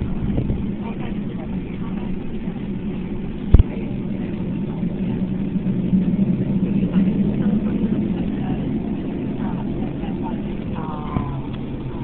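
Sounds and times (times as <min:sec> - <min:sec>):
airplane engines rumbling in cabin: 0:00.0 - 0:12.0.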